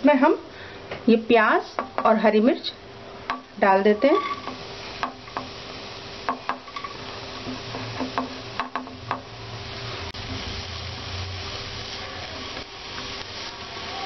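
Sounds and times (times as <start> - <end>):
onion sizzling in oil: 0.0 - 14.0
spatula scraping pan: 3.9 - 5.5.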